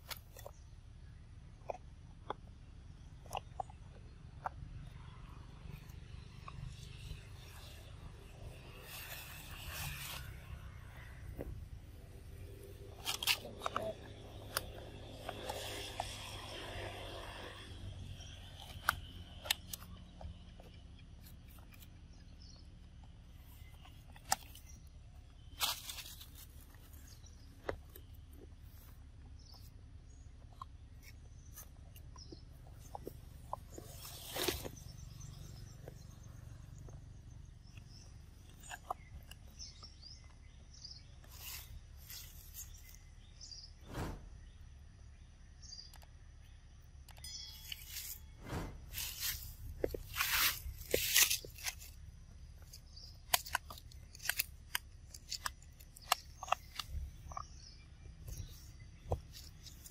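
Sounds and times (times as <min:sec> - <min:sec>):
rustling in dry leaves: 0:07.4 - 0:11.2, 0:25.6 - 0:27.3, 0:33.7 - 0:35.2, 0:41.2 - 0:43.0, 0:47.6 - 0:56.0.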